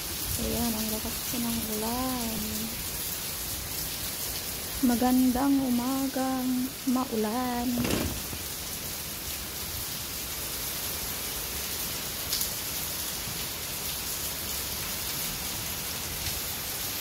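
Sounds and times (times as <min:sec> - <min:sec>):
heavy rain: 0:00.0 - 0:17.0.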